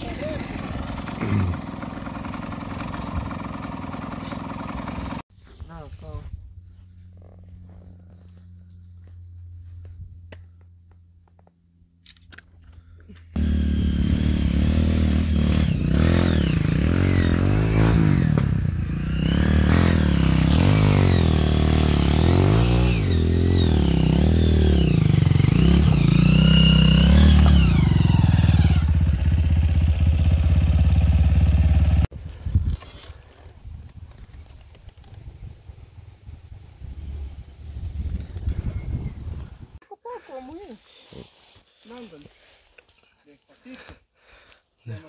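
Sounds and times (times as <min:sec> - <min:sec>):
dirt bike engine revving: 0:00.0 - 0:05.2, 0:13.4 - 0:32.1.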